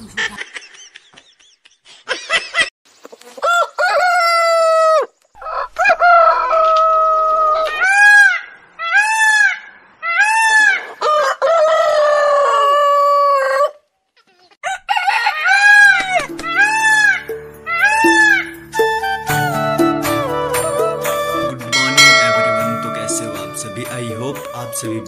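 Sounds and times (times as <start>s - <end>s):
rooster crowing: 3.4s - 8.3s, 11.0s - 13.7s, 14.6s - 16.7s.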